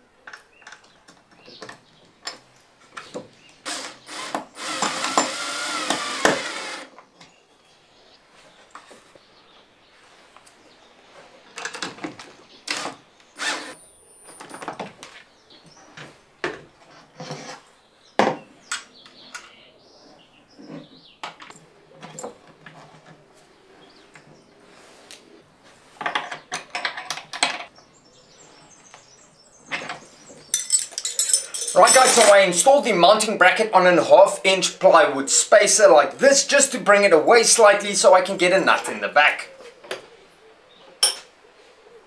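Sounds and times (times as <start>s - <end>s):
cordless drill driving screws: 3.6s - 6.9s, 12.7s - 13.8s.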